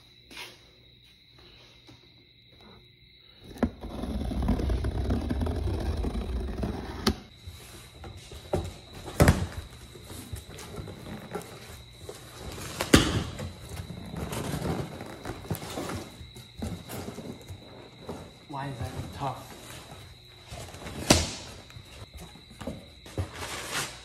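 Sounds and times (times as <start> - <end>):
cardboard box scraping and rustling: 3.8 - 7.3, 23.2 - 24.0.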